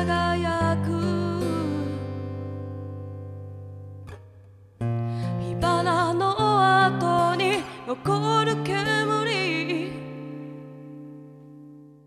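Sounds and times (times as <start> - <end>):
person singing: 0.0 - 2.1, 5.2 - 10.6
song with guitar: 0.0 - 12.0.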